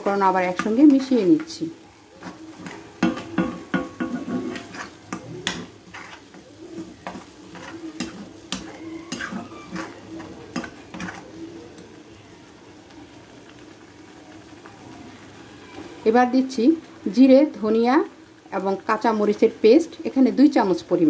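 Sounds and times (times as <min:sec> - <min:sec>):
soft sizzle: 0:00.0 - 0:21.0
steel spatula scraping pan: 0:00.4 - 0:11.4.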